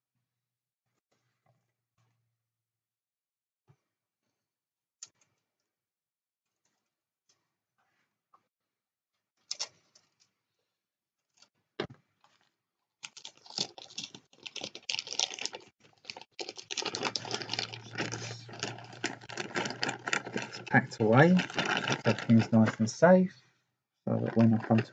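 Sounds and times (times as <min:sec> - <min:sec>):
plastic clattering and crinkling: 0:11.8 - 0:23.2, 0:24.1 - 0:24.9.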